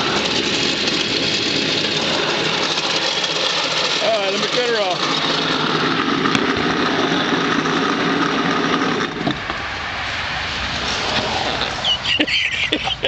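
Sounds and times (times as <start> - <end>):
garbage disposal grinding: 0.0 - 9.4
steady background noise: 0.0 - 13.0.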